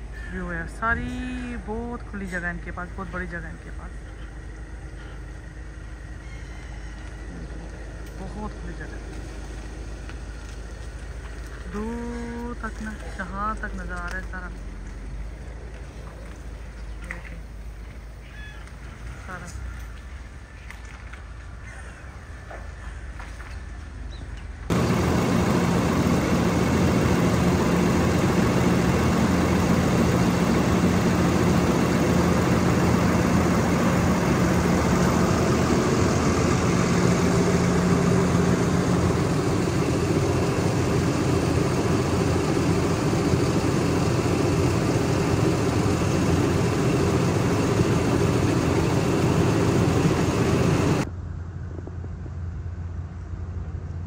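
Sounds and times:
motor humming: 0:24.7 - 0:51.0.

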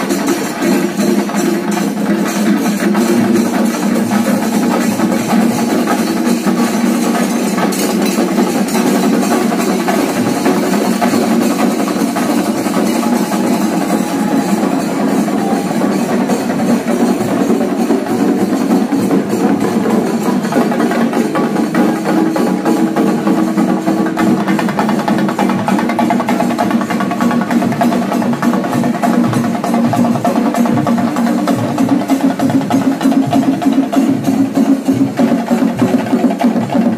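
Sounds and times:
percussion ensemble drumming: 0:00.0 - 0:36.9.

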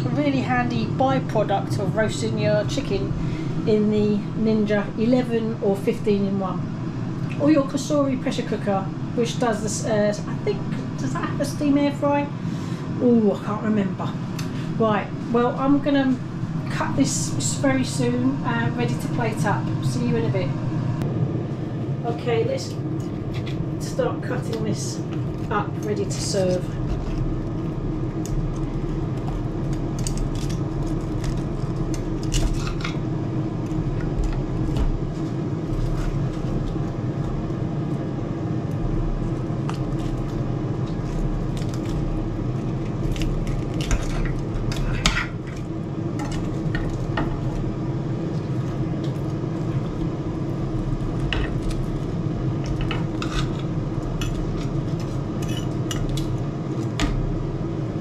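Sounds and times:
air fryer fan humming: 0:00.0 - 0:58.0
knife and fork scraping a platter: 0:52.8 - 0:56.1.

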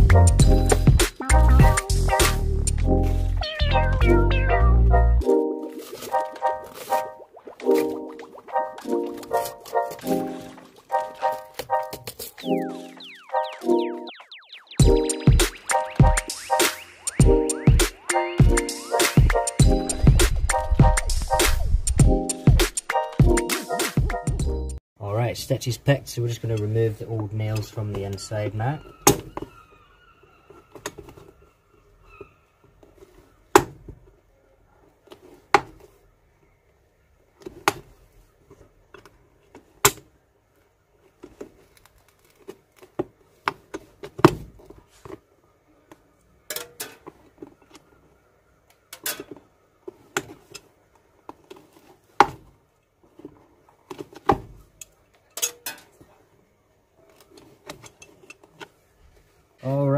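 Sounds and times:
scraping and rustling: 0:05.6 - 0:12.4.

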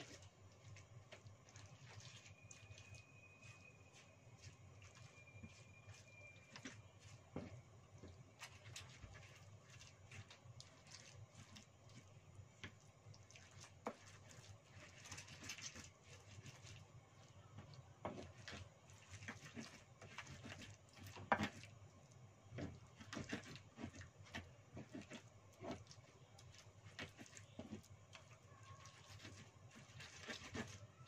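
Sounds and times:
pestle scraping and knocking in mortar: 0:13.6 - 0:16.6, 0:18.0 - 0:21.7, 0:22.5 - 0:26.0, 0:26.9 - 0:28.2, 0:28.9 - 0:30.8.

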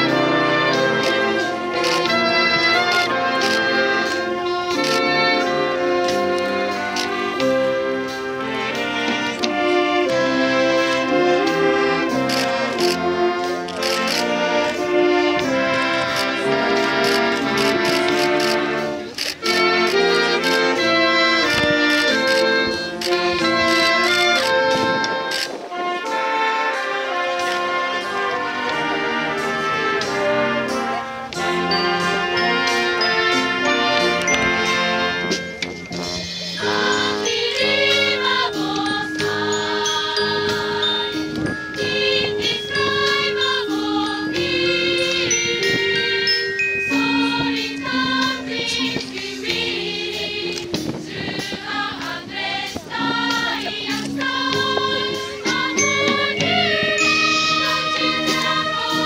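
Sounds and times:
wind band playing held chords: 0:00.0 - 0:59.0
mallet percussion: 0:28.2 - 0:59.0.

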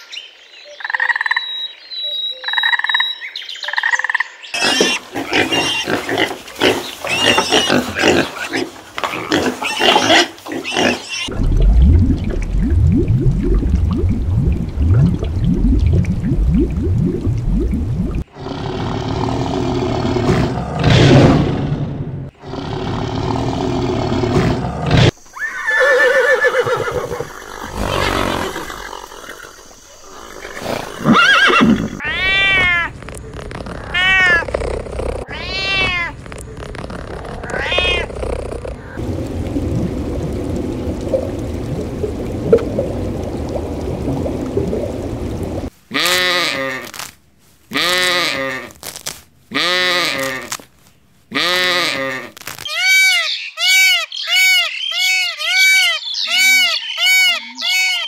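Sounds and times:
drawn-out animal cries: 0:25.4 - 0:27.2, 0:31.1 - 0:33.0, 0:33.8 - 0:34.5.

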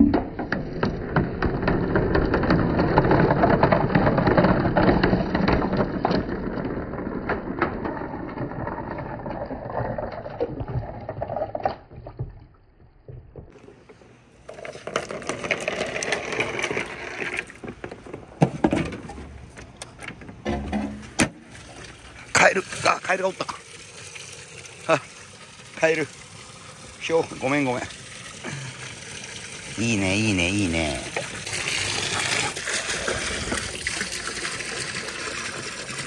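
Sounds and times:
marbles clicking and rolling: 0:00.6 - 0:11.9, 0:14.5 - 0:17.7
water running down track: 0:20.5 - 0:36.0.

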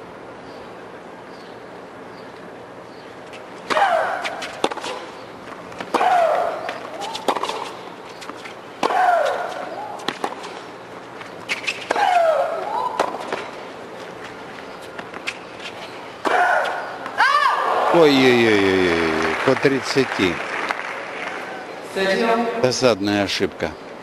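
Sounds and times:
tennis racket hitting ball: 0:03.6 - 0:05.2, 0:05.8 - 0:10.6, 0:11.5 - 0:13.5, 0:16.2 - 0:17.2
woman shrieking: 0:17.2 - 0:17.7.

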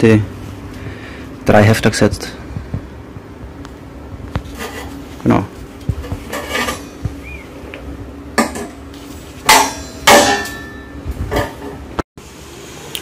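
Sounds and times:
metal sheet clanking: 0:08.4 - 0:11.8.

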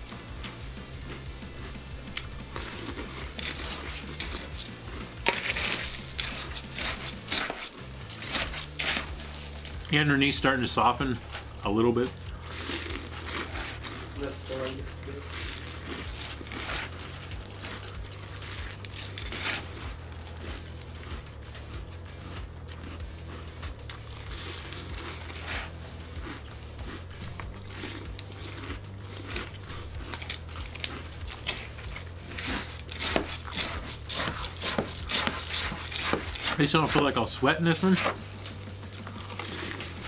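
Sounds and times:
cereal crunching while chewed: 0:00.0 - 0:40.0
low steady hum: 0:00.0 - 0:40.0.

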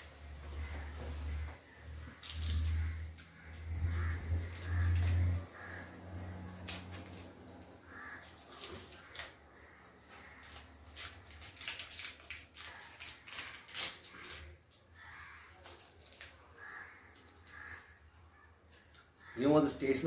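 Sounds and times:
plastic sachet crinkling: 0:02.1 - 0:02.9, 0:06.5 - 0:09.4, 0:10.2 - 0:16.5.

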